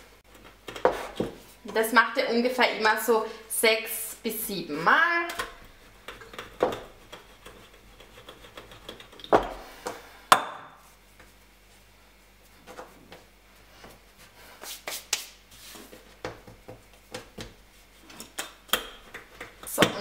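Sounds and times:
rolling pin on wooden table: 0.6s - 1.4s
hands rubbing dough: 5.8s - 9.8s, 10.8s - 18.4s.

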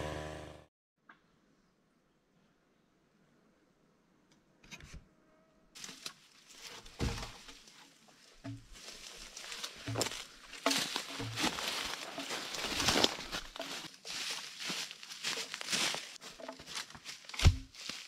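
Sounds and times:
footsteps crunching on twigs: 5.8s - 18.0s.

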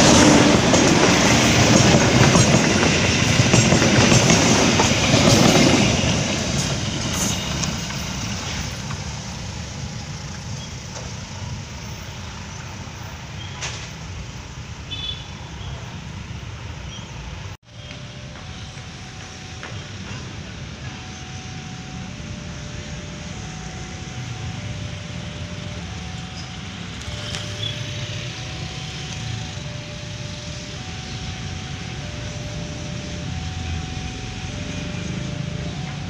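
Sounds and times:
distant traffic: 0.0s - 36.0s
wind: 0.0s - 36.0s
faint two-note signal: 17.8s - 36.0s.

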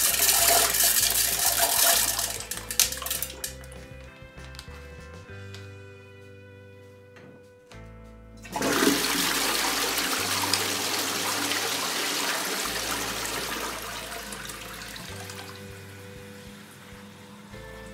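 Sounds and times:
toilet flushing: 0.0s - 3.5s, 8.4s - 17.9s.

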